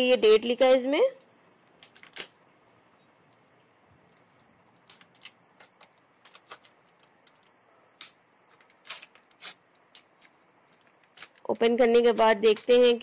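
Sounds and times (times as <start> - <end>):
plastic pack crackling: 1.8 - 2.4, 4.2 - 13.0.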